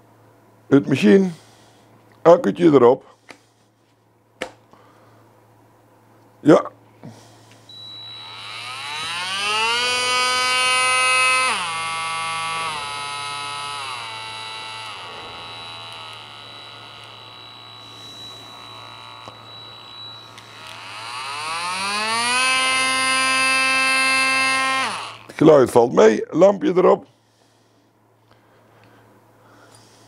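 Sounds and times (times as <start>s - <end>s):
oscillating multitool motor whining: 7.7s - 25.3s.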